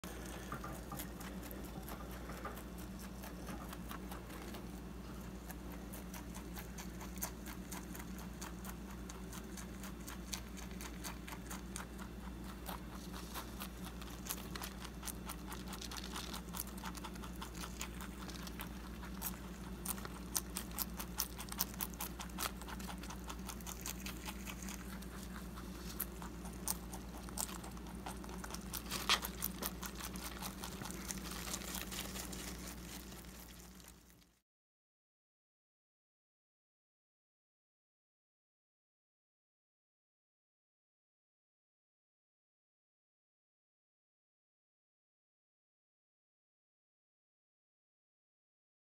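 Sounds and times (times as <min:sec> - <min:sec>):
rabbit chewing parsley: 0:00.0 - 0:34.4.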